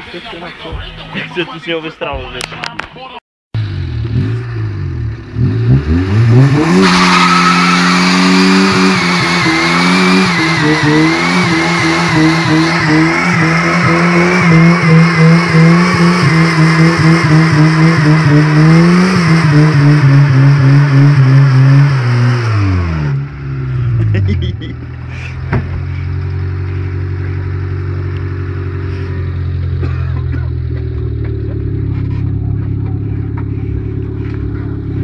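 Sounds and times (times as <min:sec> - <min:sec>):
car engine revving: 0:03.6 - 0:35.0
tyre squealing: 0:06.6 - 0:15.0.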